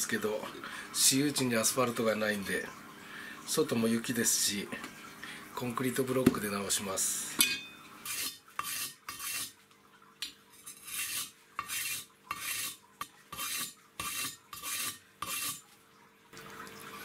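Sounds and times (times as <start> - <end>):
knife blade scraping concrete: 8.0 - 9.6, 10.6 - 15.6.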